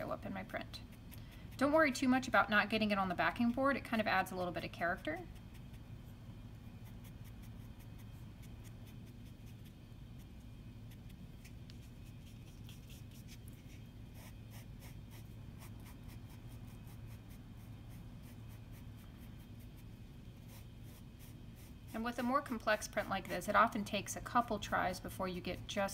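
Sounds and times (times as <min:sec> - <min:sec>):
steady low hum: 0:00.0 - 0:25.9
scratchy foam brush strokes: 0:05.2 - 0:23.8.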